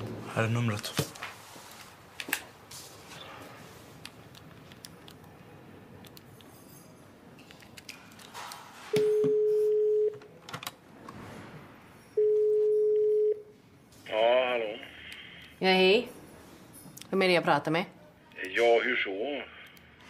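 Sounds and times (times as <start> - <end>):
telephone ringing tone: 9.0 - 10.2, 12.2 - 13.6.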